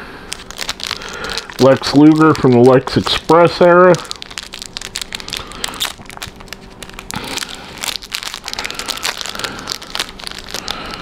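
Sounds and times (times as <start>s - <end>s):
packaging crinkling and rustling: 0.3s - 11.0s.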